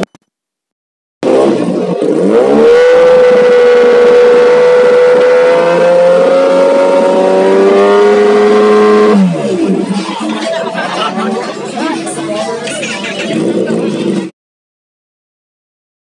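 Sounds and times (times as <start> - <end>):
motorcycle engine revving: 1.2 - 11.5.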